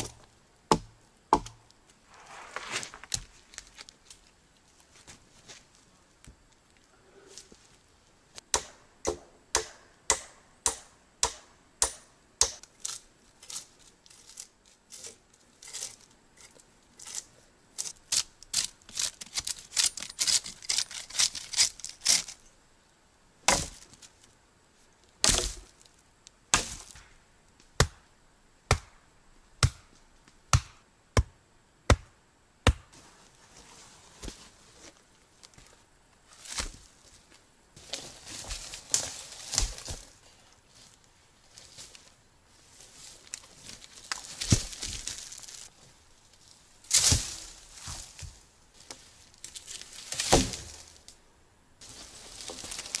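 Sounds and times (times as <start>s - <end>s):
axe chopping wood: 0.0s - 1.6s, 8.5s - 12.6s, 23.5s - 23.8s, 25.2s - 25.7s, 26.5s - 27.1s, 27.8s - 28.0s, 28.7s - 29.0s, 29.6s - 29.9s, 30.5s - 31.3s, 31.9s - 32.9s, 50.2s - 50.8s.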